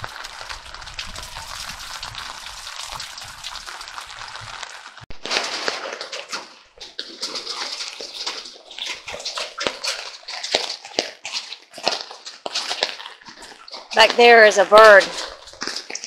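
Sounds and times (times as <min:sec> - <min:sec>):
heavy rain splashing and dripping: 0:00.0 - 0:06.6.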